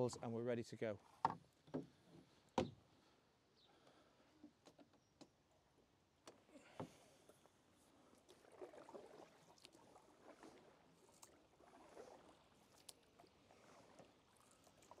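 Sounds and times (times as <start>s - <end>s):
paddles splashing in water: 6.4s - 15.0s.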